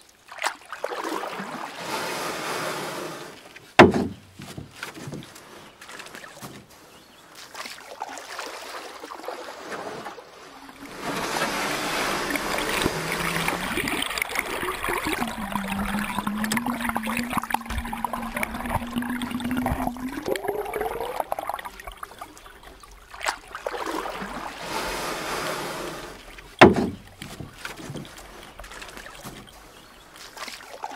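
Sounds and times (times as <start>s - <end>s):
water rushing and gurgling: 0.0s - 4.4s, 5.0s - 30.9s
sharp knock: 3.8s - 4.2s, 26.6s - 27.0s
low hum: 10.8s - 22.8s.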